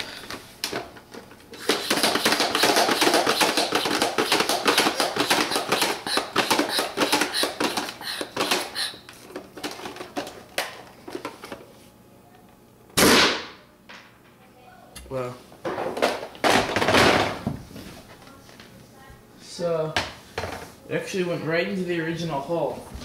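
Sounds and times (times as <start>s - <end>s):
pump strokes with air rushing: 1.6s - 9.0s.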